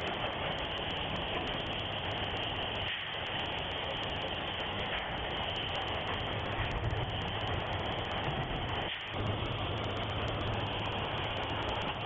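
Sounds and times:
factory machinery running: 0.0 - 12.0
low hum: 5.7 - 12.0.

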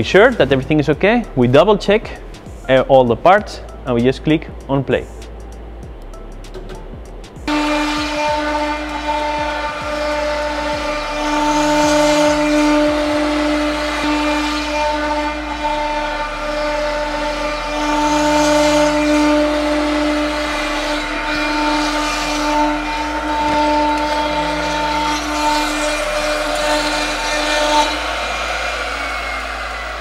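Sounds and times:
cnc router spindle whine: 7.5 - 30.0
end mill cutting plywood: 7.5 - 30.0.

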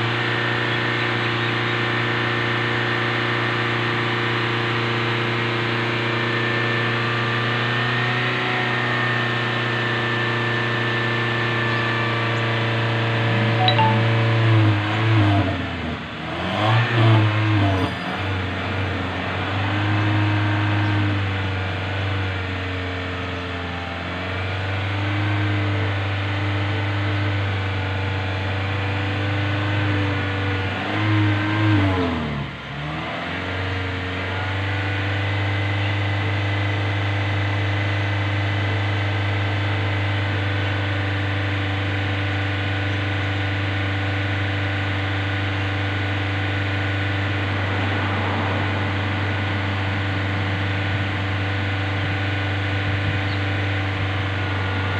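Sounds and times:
car engine revving: 14.5 - 37.6, 44.0 - 54.9.

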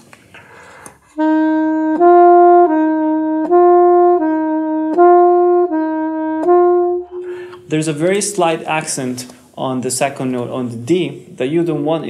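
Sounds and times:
alto saxophone playing: 1.0 - 7.8.

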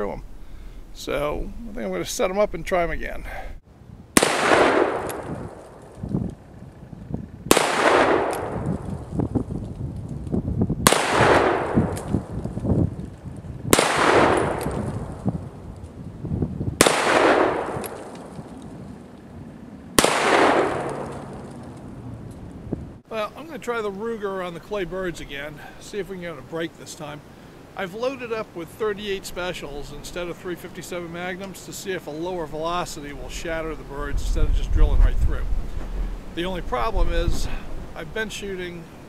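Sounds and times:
revolver shots echoing: 20.0 - 21.5.

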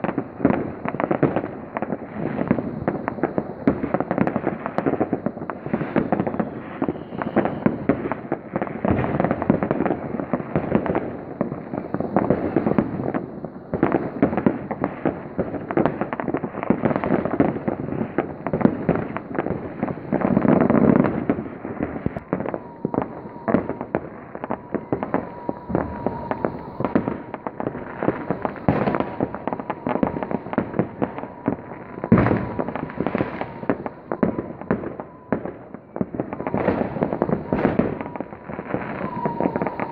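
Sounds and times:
firecrackers crackling: 0.0 - 39.9
rockets bursting with bangs: 0.0 - 39.9
faint steady high tone: 22.2 - 39.9.

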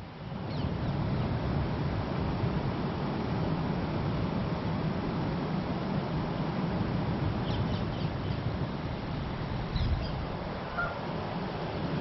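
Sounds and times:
goslings peeping: 10.8 - 11.0.

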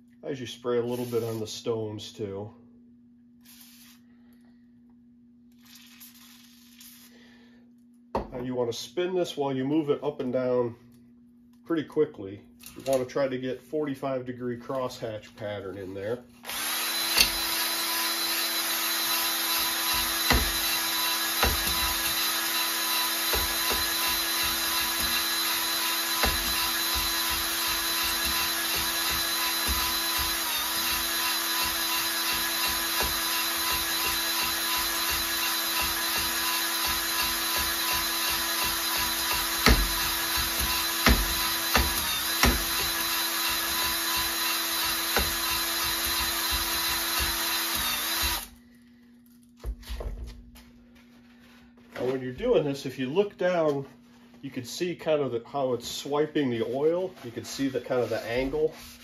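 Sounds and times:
cordless drill spinning: 0.9 - 1.4, 16.4 - 48.6.

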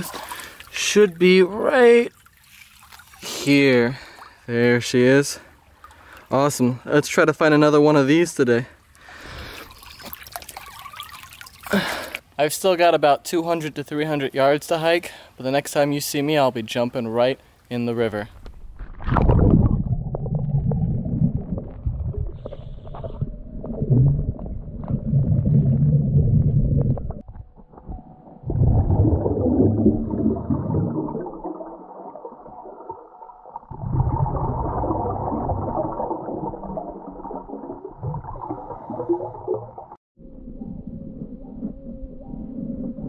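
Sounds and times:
scuba regulator bubbles underwater: 19.1 - 40.0.

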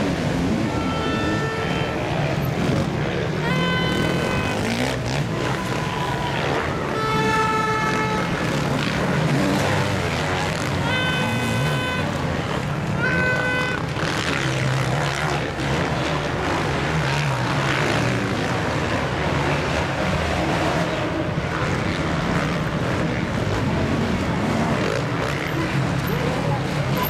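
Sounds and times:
horn-like tone: 0.0 - 14.8
motocross engines revving: 0.0 - 27.0.

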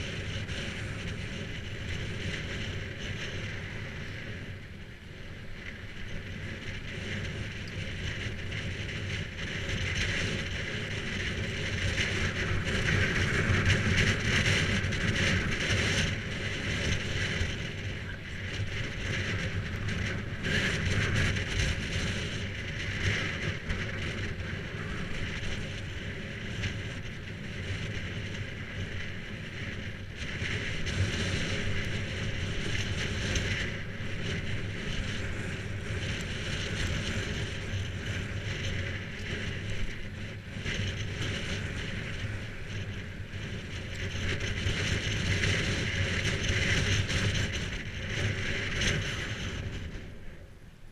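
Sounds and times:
tyres rolling on tarmac: 0.0 - 50.5
wind rushing over microphone: 0.0 - 50.9.

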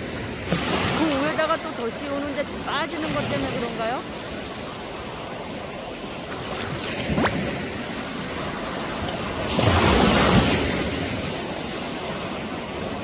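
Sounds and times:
sea surf washing ashore: 0.0 - 13.0
wave breaking: 0.0 - 13.0.

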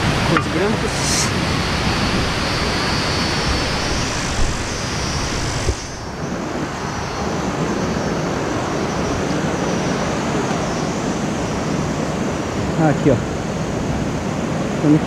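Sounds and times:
river water rushing: 0.0 - 15.0.

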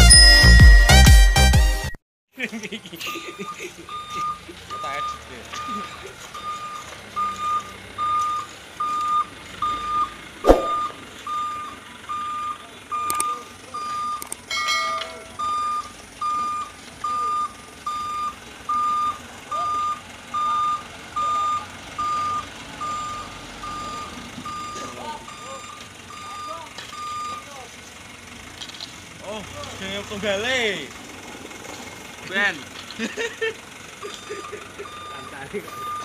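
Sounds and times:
truck reversing alarm beeping: 0.0 - 2.0, 3.1 - 28.8, 32.8 - 36.0
sharp knock: 10.5 - 10.9.

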